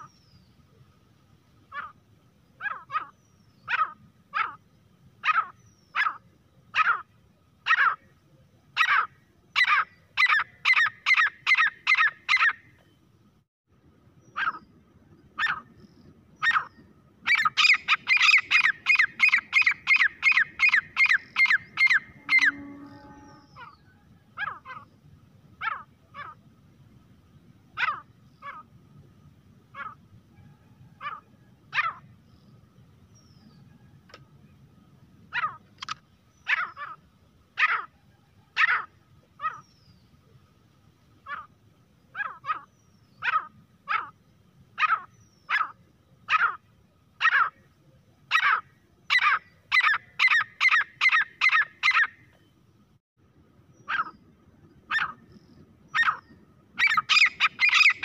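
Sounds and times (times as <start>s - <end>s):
francolin calling: 8.7s - 12.7s, 14.2s - 25.0s, 48.3s - 52.4s, 53.7s - 58.0s.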